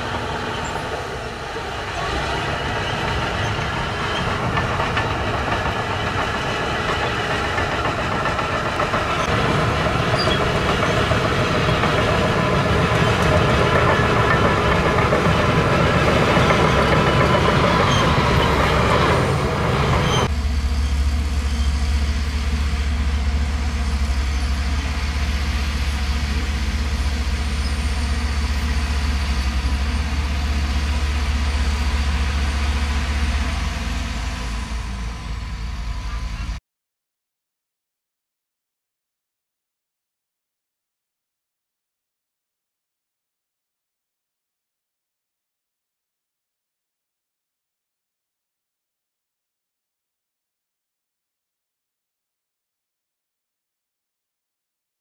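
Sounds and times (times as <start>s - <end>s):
bulldozer diesel engine running: 0.0s - 36.6s
steel tracks clattering: 0.0s - 36.6s.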